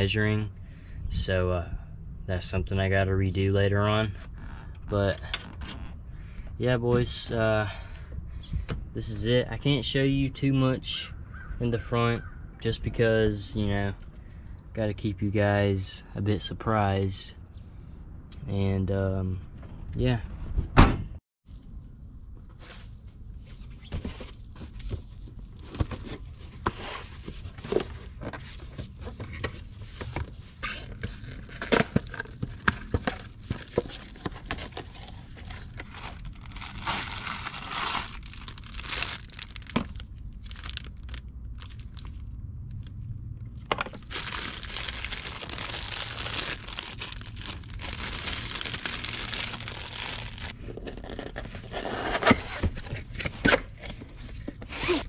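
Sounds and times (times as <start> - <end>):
packaging crinkling and tearing: 30.8 - 42.9, 44.0 - 51.4.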